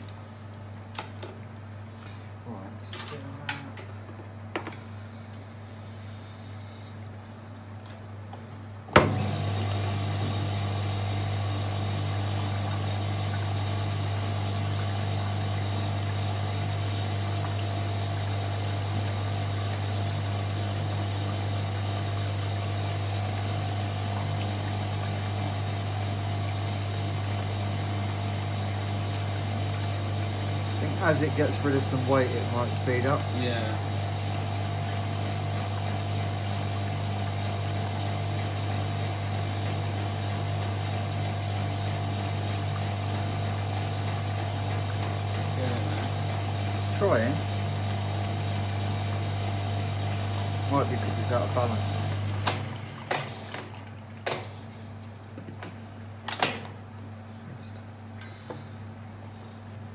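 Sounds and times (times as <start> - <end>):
motor hum: 7.9 - 54.5.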